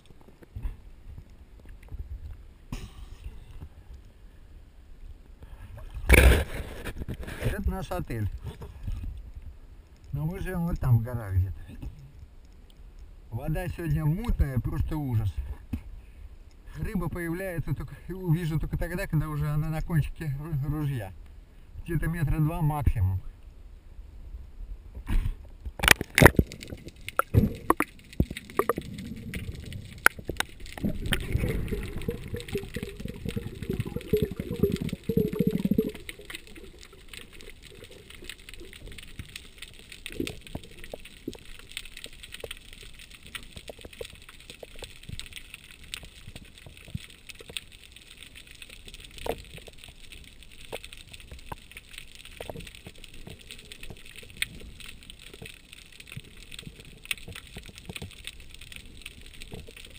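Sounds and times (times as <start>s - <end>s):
sharp underwater clicks: 25.0s - 59.9s
underwater rushing: 25.8s - 59.9s.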